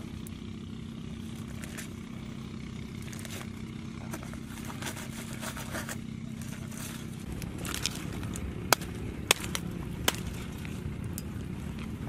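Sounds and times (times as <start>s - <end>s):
low steady rumble: 0.0s - 12.0s
aluminium foil crinkling and tearing: 1.2s - 2.0s, 3.0s - 10.9s
sharp cracks: 6.8s - 11.9s.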